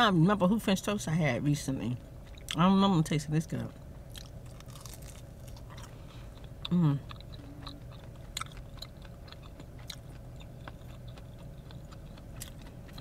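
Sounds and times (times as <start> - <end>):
close chewing: 4.1 - 13.0.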